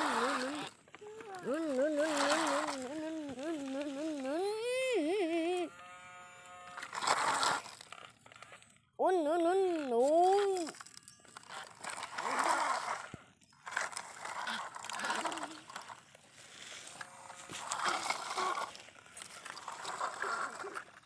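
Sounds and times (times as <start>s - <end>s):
person humming: 0.0s - 5.8s, 9.0s - 10.8s, 14.5s - 15.8s
toy trucks crunching on gravel: 0.0s - 21.0s.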